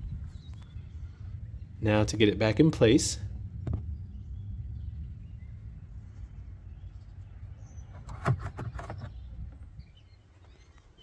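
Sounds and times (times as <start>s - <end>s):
low steady rumble: 0.0s - 10.2s.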